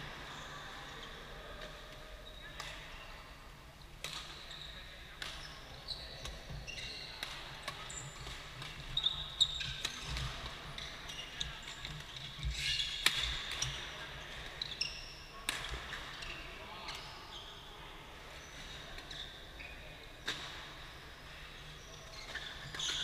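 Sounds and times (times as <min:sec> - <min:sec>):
shoes squeaking on court: 0:21.2 - 0:23.0.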